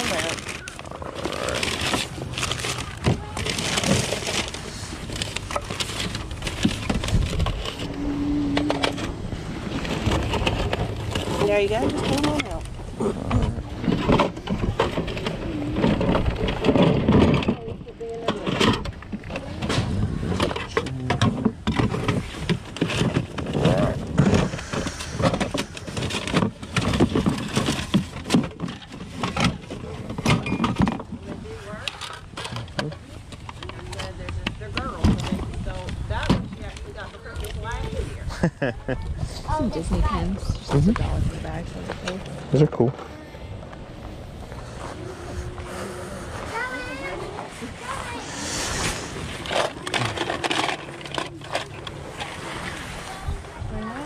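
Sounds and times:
paper crinkling: 0.0s - 8.0s
plastic toys knocking and rattling: 0.0s - 37.8s, 46.5s - 52.3s
low hum: 0.4s - 17.9s.

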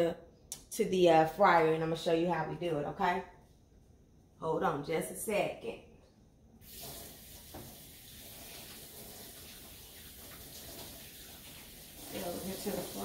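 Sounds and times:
tap water running into sink: 6.6s - 13.0s.

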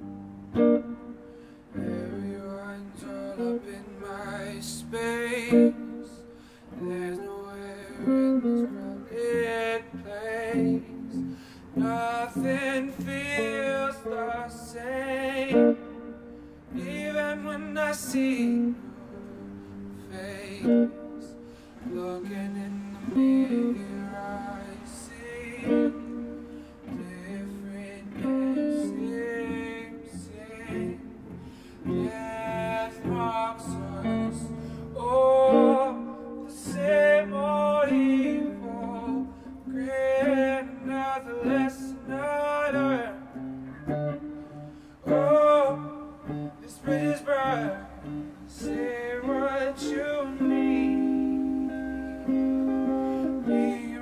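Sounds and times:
electric guitar playing: 0.0s - 54.0s
man singing with vibrato: 0.0s - 54.0s.

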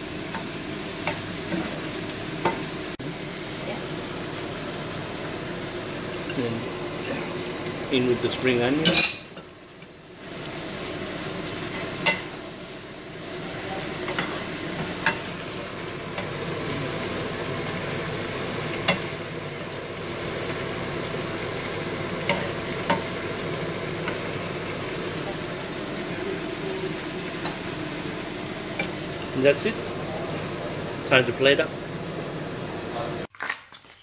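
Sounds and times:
food sizzling in a frying pan: 0.0s - 33.3s.

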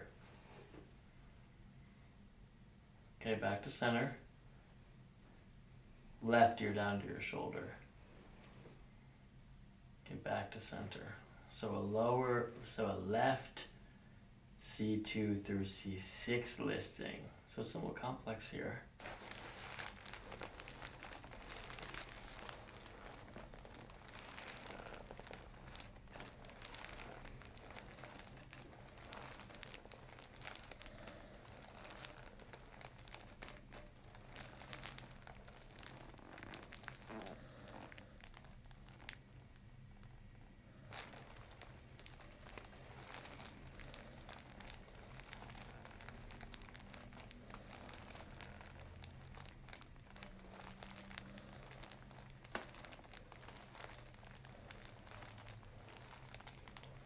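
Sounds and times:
faint steady hum: 0.0s - 57.0s
paper crinkling and rustling: 19.0s - 40.1s, 40.8s - 57.0s.

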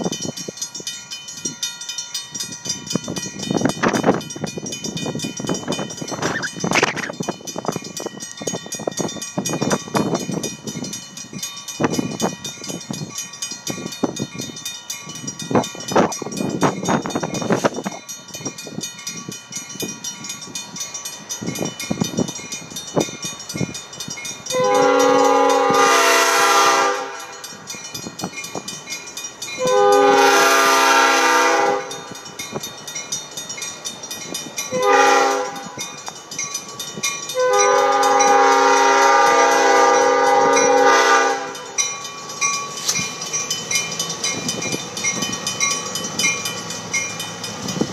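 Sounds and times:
locomotive air horn: 24.5s - 27.4s, 29.6s - 32.0s, 34.7s - 35.8s, 37.4s - 41.7s.

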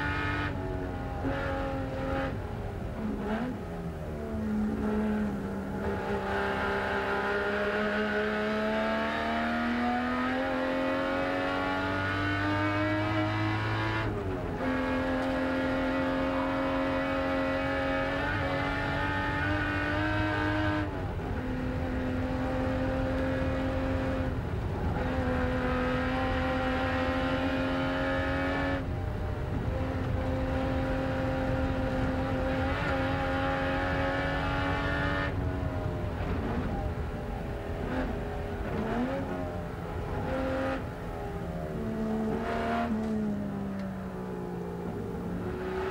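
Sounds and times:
racing car engine at full pace: 0.0s - 45.9s.

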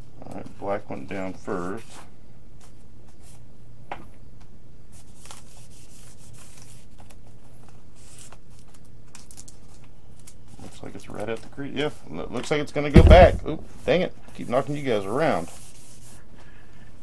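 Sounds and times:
steady low hum: 12.1s - 14.2s.

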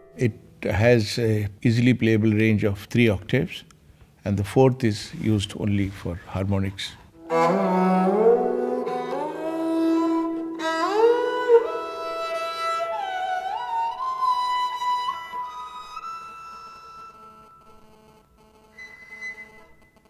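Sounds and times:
bowed string melody: 7.2s - 17.9s.

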